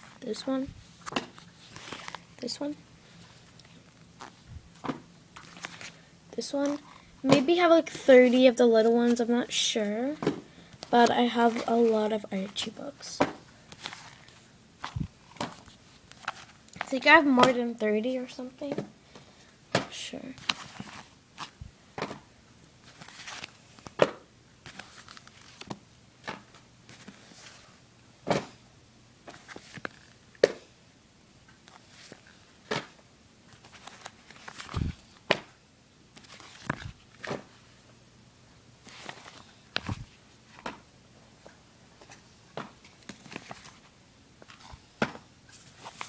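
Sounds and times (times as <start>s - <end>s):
paper rustles and taps: 1.0s - 2.2s, 33.6s - 35.5s, 38.8s - 40.8s.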